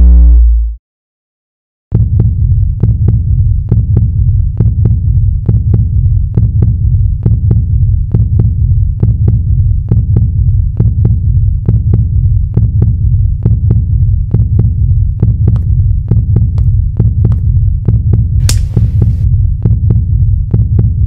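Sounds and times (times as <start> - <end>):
loud low drone: 0.0 - 0.8
heartbeat-like pulse: 1.9 - 21.0.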